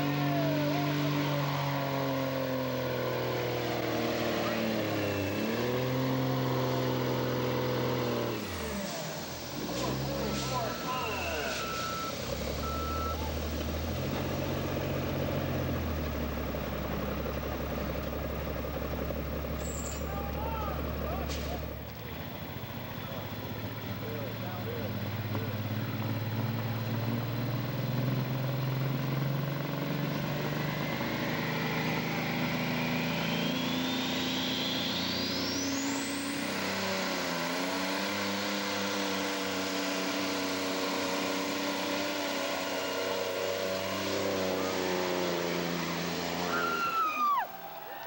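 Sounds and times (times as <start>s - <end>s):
diesel truck engine pulling hard: 0.0s - 48.0s
turbocharger whine: 0.0s - 48.0s
people shouting: 20.1s - 21.2s, 46.4s - 48.0s.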